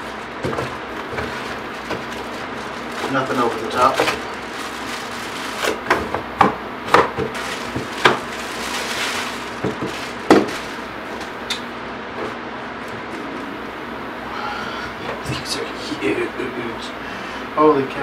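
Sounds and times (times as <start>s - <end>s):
plastic bag rustling: 0.0s - 11.5s
fan running: 0.0s - 18.0s.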